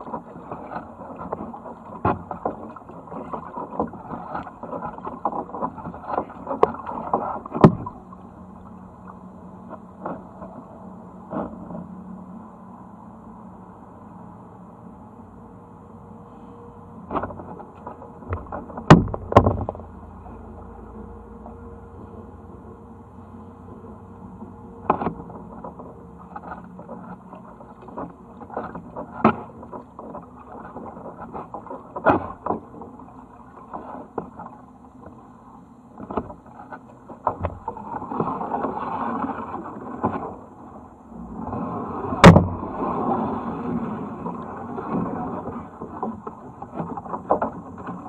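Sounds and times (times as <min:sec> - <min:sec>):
water splashing: 0:00.0 - 0:11.8, 0:17.1 - 0:22.6, 0:23.2 - 0:48.0
paddle dipping into water: 0:00.0 - 0:12.0, 0:16.3 - 0:48.0
sharp knocks: 0:18.3 - 0:19.8.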